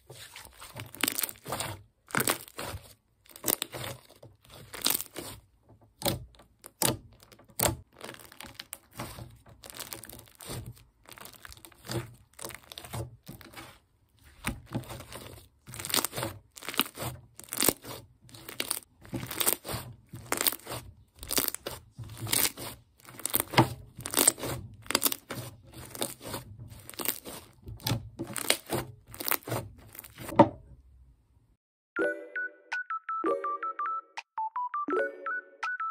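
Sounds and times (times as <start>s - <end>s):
slime crackling and popping: 0.6s - 30.3s.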